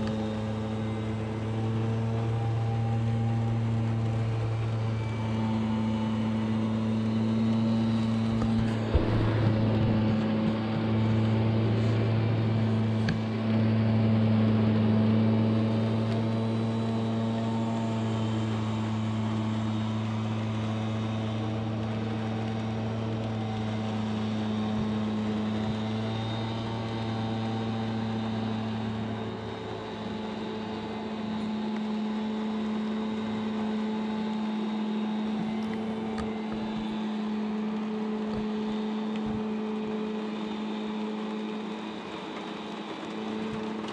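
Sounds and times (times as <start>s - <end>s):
leaf blower engine drone: 0.0s - 43.9s.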